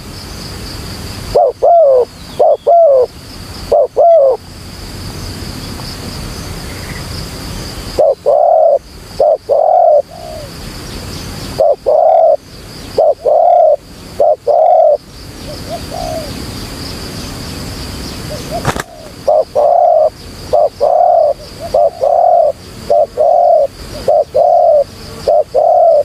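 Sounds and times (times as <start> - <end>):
dove cooing: 1.3 - 4.4, 8.0 - 10.5, 11.5 - 16.4, 18.3 - 26.0.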